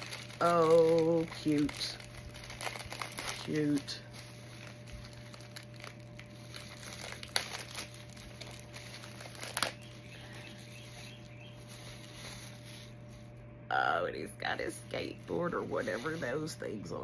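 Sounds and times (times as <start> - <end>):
packaging crinkling: 0.0 - 13.4.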